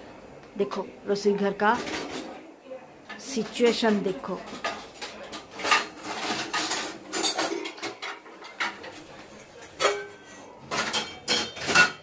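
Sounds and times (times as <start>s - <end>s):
metal plates and utensils clinking: 3.3s - 12.0s.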